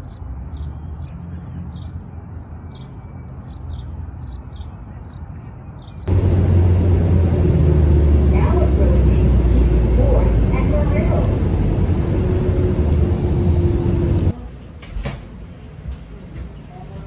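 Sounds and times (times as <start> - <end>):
small birds chirping: 0.0 - 6.1
low traffic rumble: 0.0 - 17.0
bus engine drone: 4.9 - 17.0.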